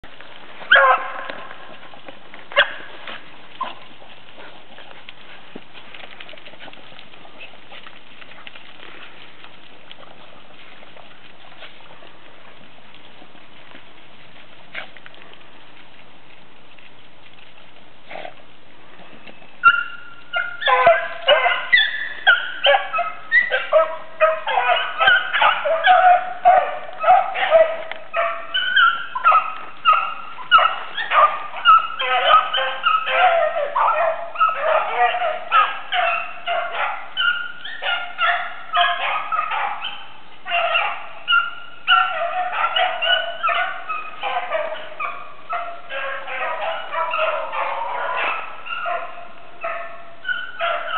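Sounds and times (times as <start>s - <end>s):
dogs baying: 0.6s - 9.3s, 19.6s - 50.9s.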